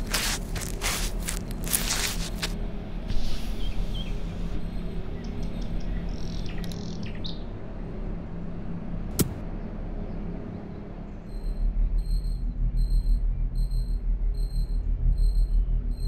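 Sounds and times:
sharp click: 9.2s - 9.4s.

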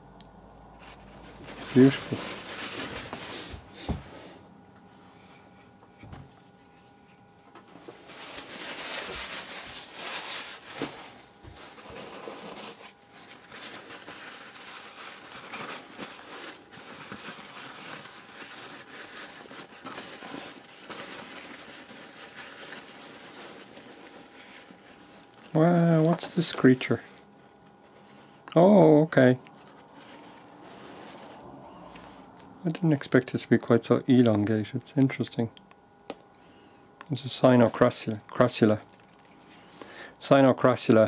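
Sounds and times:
tissue paper rustling: 0.8s - 3.6s, 7.8s - 27.1s, 29.6s - 32.2s.

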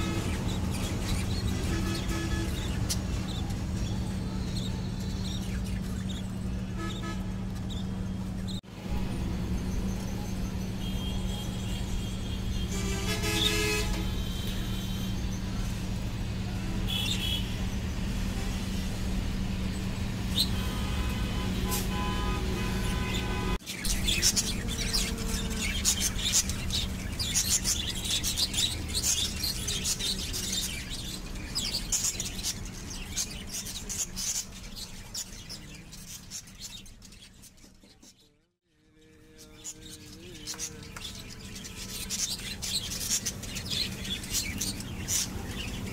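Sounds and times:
chicks clicking and chirping: 39.7s - 45.9s.

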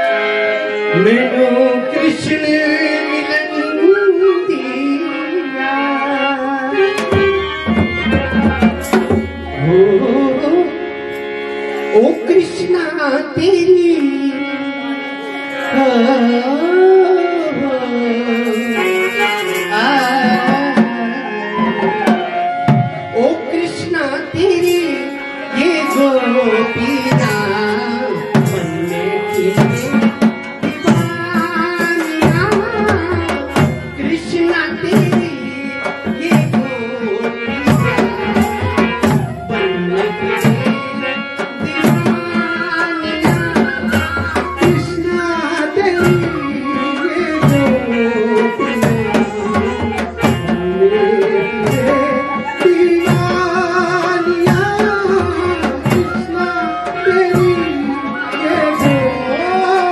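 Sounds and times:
person singing folk song: 0.0s - 11.2s, 11.8s - 59.9s
hand drum rhythm: 6.9s - 9.8s, 18.4s - 23.3s, 25.8s - 59.9s.

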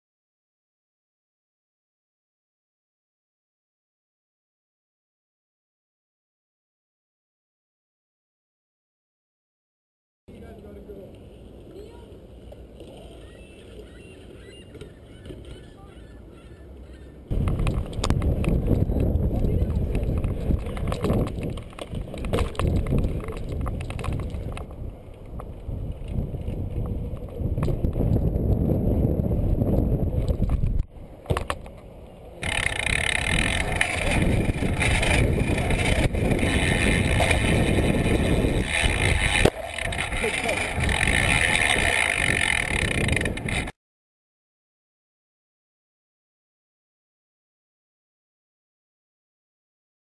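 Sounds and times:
short calls: 13.0s - 17.3s
tyres rumbling on concrete: 17.2s - 24.8s, 32.4s - 43.7s
wind on microphone: 17.3s - 30.9s, 32.4s - 43.7s
sharp rattles: 32.4s - 43.7s.

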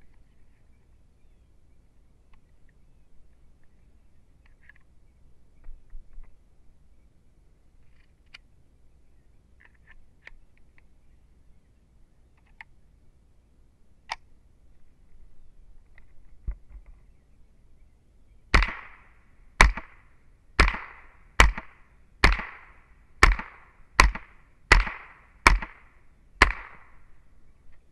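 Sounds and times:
rifle shots: 18.5s - 27.1s.

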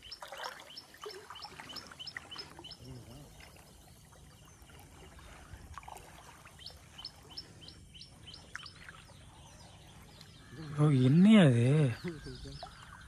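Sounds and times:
bird calling high slurred notes: 6.5s - 13.0s.

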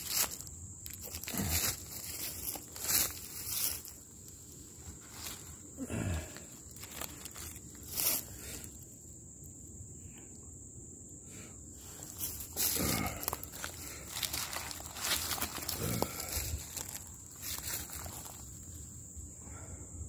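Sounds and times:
footsteps crunching dry leaves: 0.0s - 8.8s, 11.8s - 18.8s
high insect drone: 0.0s - 20.0s.

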